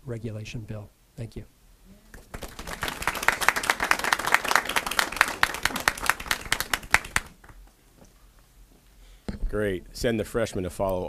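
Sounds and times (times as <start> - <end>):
people applauding: 2.2 - 7.6.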